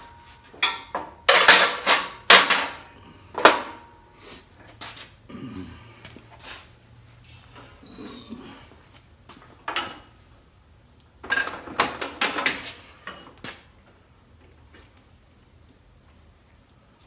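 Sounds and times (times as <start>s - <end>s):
metal tools clinking and rattling: 0.5s - 2.8s.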